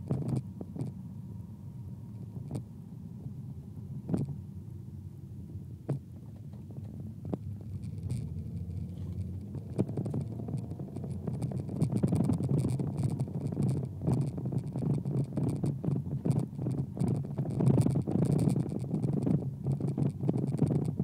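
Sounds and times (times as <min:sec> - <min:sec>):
scratching and rattling clicks: 0:00.0 - 0:01.0, 0:05.9 - 0:21.0
car engine and road hum: 0:00.0 - 0:21.0.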